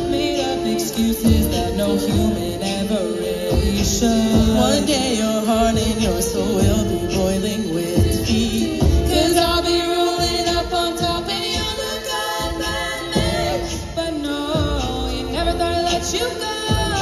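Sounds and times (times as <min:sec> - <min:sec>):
women singing in close harmony: 0:00.0 - 0:17.0.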